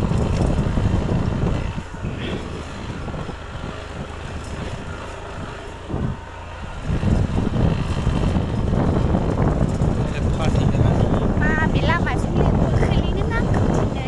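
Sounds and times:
vehicle road noise: 0.0s - 14.0s
wind buffeting microphone: 0.0s - 14.0s.

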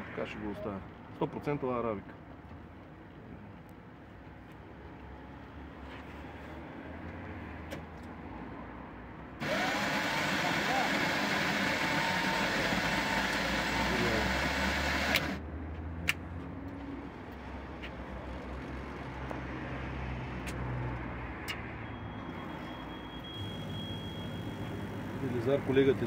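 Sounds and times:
machine hum: 9.4s - 15.4s
vending machine whirr: 9.4s - 15.4s, 22.3s - 26.0s
sharp machine clicks: 13.9s - 15.4s.

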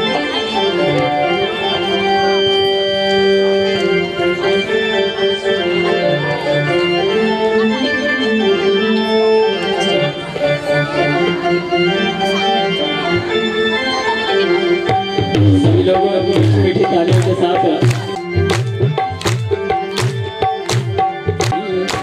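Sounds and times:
electronic keyboard organ melody: 0.0s - 22.0s.

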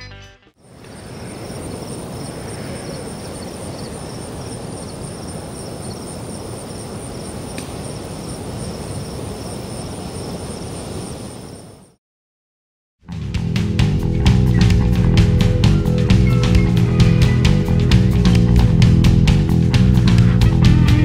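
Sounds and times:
wind: 0.6s - 12.0s
faint click: 7.5s - 7.8s.

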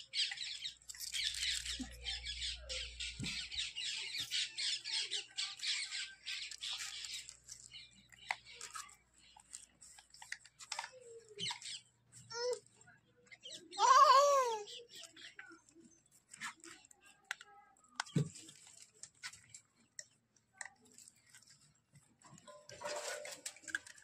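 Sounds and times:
birds squawking and chirping: 0.0s - 9.5s.

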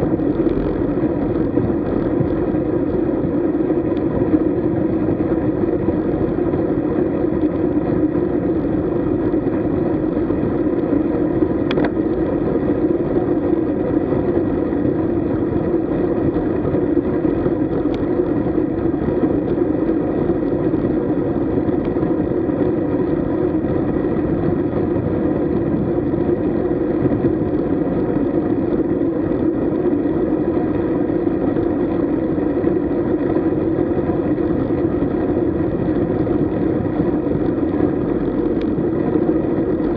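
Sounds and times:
tyre noise on tarmac: 0.0s - 39.9s.

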